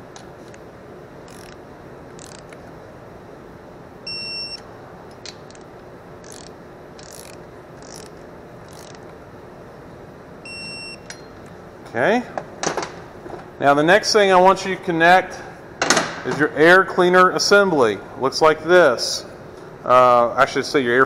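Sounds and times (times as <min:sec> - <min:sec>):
faint ratchet clicks: 0:01.3 - 0:01.6, 0:02.2 - 0:02.6, 0:06.2 - 0:09.1
torque wrench beeping: 0:04.1 - 0:04.7, 0:06.2 - 0:09.0, 0:10.4 - 0:11.4.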